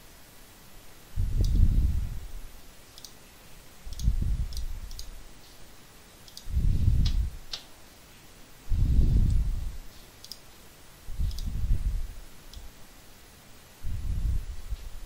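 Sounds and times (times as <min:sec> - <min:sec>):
computer mouse clicking: 0:01.4 - 0:01.6, 0:02.9 - 0:03.2, 0:03.9 - 0:05.2, 0:06.2 - 0:07.7, 0:10.2 - 0:10.5, 0:11.2 - 0:11.6
low dull puffs: 0:06.4 - 0:07.6.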